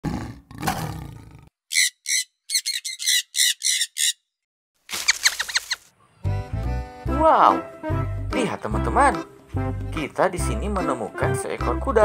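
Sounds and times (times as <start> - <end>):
lion growling: 0.0 - 1.5
lorikeets squawking: 1.7 - 4.2.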